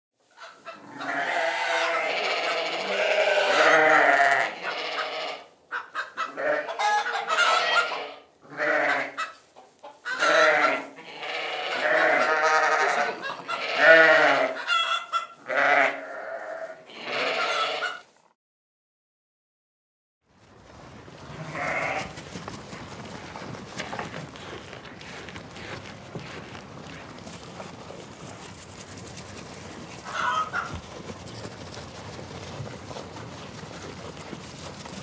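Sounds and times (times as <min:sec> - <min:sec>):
sheep bleating: 0:00.8 - 0:05.5, 0:06.2 - 0:09.3, 0:10.1 - 0:18.2, 0:21.3 - 0:22.2.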